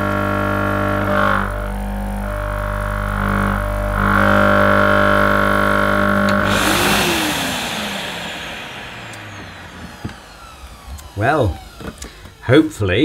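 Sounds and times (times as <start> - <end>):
pump droning buzz: 0.0 - 12.6
hiss: 6.4 - 10.9.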